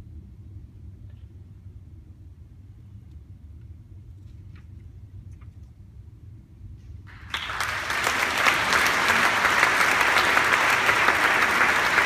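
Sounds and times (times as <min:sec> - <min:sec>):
audience applause: 0:07.1 - 0:12.0.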